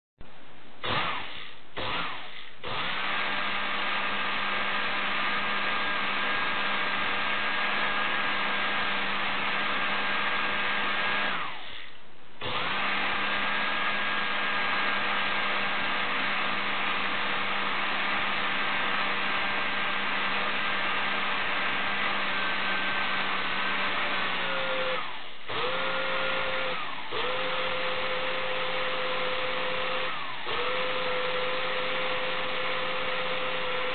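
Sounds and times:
electric motor whine and hum: 22.3s - 33.9s.

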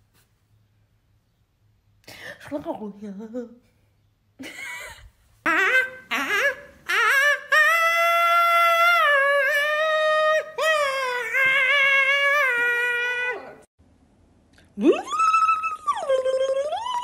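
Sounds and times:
man wailing high-pitched: 5.5s - 13.7s.

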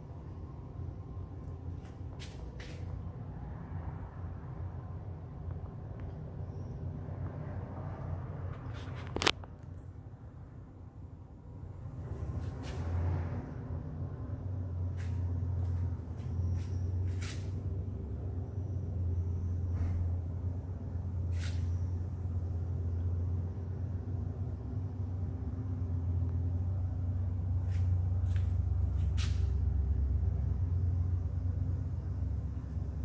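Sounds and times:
low mechanical drone: 0.0s - 33.0s
short hisses: 21.3s - 21.7s.

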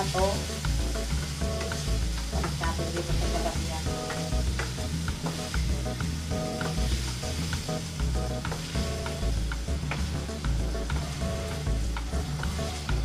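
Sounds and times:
background music: 0.0s - 13.0s
food sizzling in wok: 0.0s - 13.0s
spatula scraping wok: 0.0s - 13.0s.

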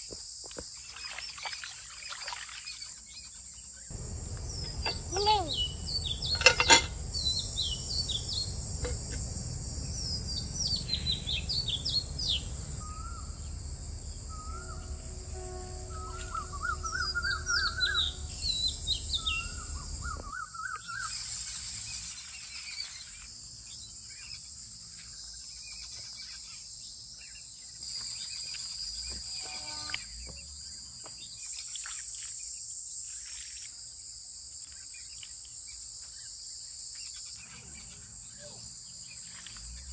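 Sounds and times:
insects droning: 0.0s - 39.9s
birds chirping and trilling: 2.0s - 30.9s
metal pot lid clanking: 6.2s - 7.1s.

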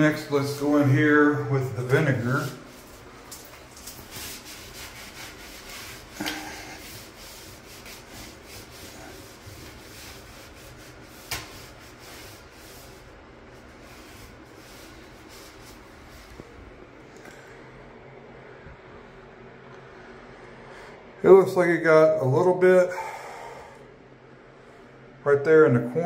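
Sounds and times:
paper towel wiping wet tiles: 0.0s - 16.6s.

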